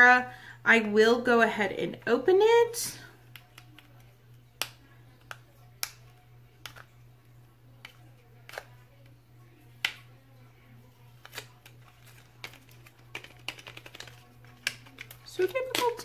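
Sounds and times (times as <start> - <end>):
low steady hum: 0.0 - 16.0
plastic clicks and taps: 3.3 - 6.9.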